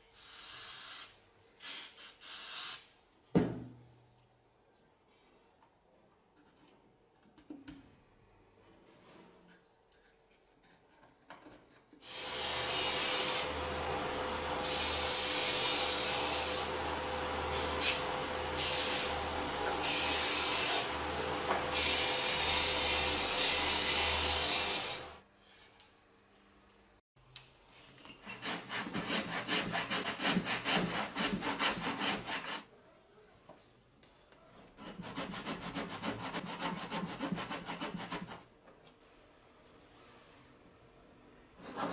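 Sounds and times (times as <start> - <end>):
handsaw cutting wood: 12.0 - 25.2, 28.2 - 32.7, 34.8 - 38.4
sander sanding wood: 12.4 - 25.1.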